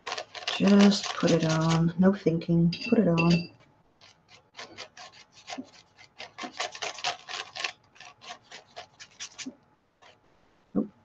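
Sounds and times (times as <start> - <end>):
paintbrush scrubbing paper: 0.0 - 2.0, 4.0 - 10.2.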